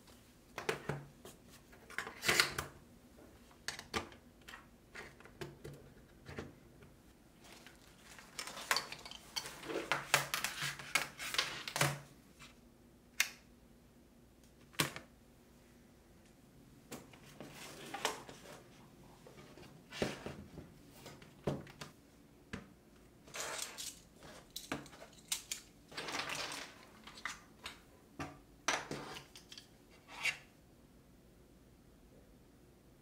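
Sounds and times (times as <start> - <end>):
cable rustling: 7.4 - 11.9.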